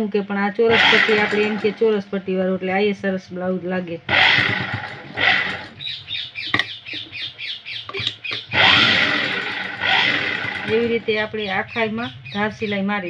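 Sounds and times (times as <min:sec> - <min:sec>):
sewing machine stitching: 0:00.7 - 0:02.0, 0:04.1 - 0:05.8, 0:07.9 - 0:11.4.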